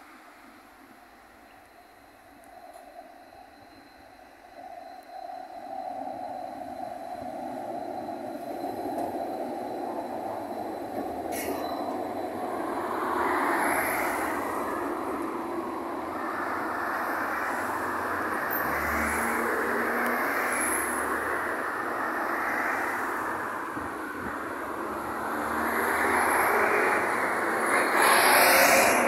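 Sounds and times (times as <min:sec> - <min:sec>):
tram wheels rumbling: 0:00.8 - 0:29.0
wheel squeals: 0:01.7 - 0:23.5, 0:24.2 - 0:29.0.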